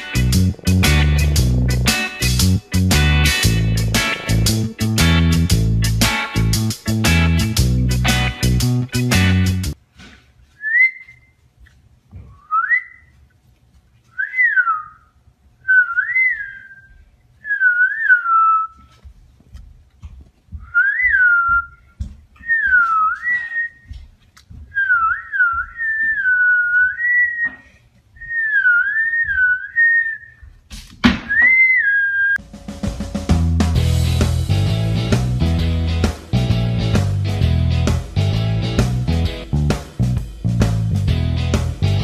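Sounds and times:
person whistling sliding phrases: 10.6 - 11.4, 12.3 - 13.1, 14.1 - 15.1, 15.7 - 18.9, 20.7 - 23.9, 24.8 - 30.4, 31.3 - 32.4.

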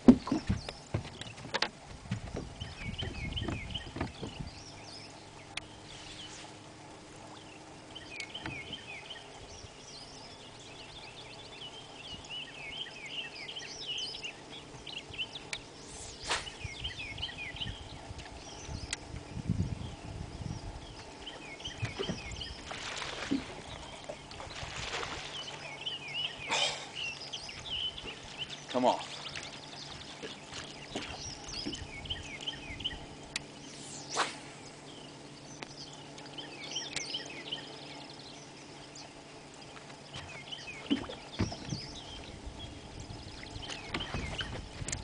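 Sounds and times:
low thumps on boat deck: 0.0 - 4.8, 8.3 - 8.9, 21.7 - 22.6, 29.9 - 32.2, 39.8 - 45.0
small birds chirping: 0.0 - 45.0.

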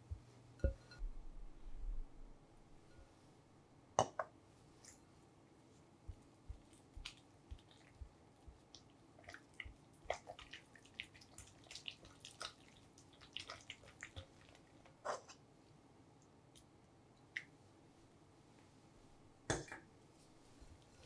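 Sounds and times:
spatula squelching cream cheese: 6.0 - 15.4.

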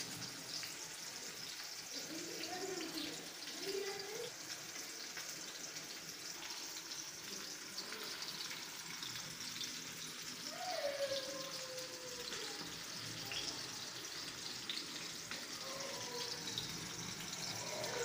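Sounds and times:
oil sizzling in a pan: 0.0 - 18.0.

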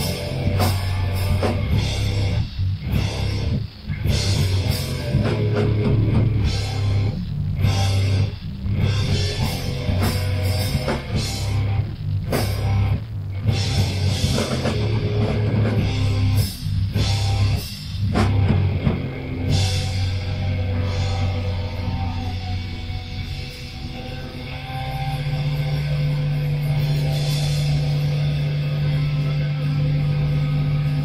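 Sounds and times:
heavy metal band playing: 0.0 - 31.0
crashing cymbals: 19.1 - 31.0.

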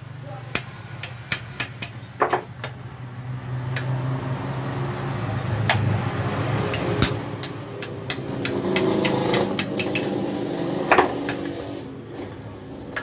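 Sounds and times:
hammer tapping metal: 0.5 - 2.8, 6.7 - 10.2.

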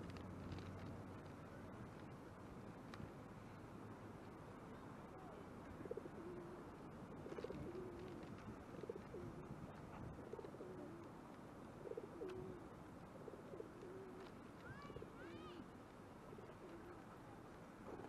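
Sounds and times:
pigeon cooing: 5.8 - 9.4, 10.0 - 11.0, 11.8 - 12.6, 13.2 - 14.3.

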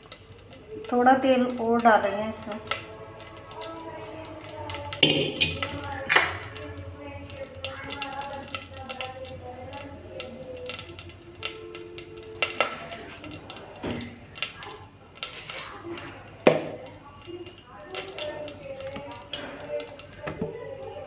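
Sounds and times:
steel pots and utensils clanking: 0.0 - 11.4
faint voices: 0.0 - 21.0.

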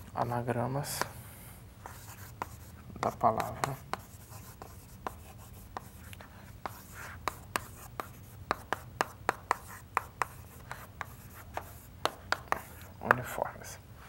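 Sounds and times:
chalk tapping on chalkboard: 1.8 - 13.4.

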